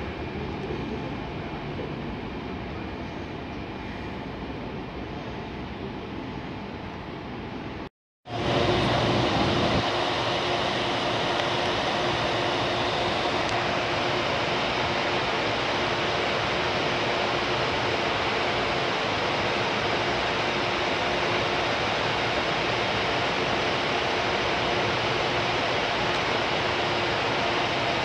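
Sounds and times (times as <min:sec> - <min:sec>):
faint steady hum: 0:00.0 - 0:28.0
steady rushing hiss: 0:08.3 - 0:28.0.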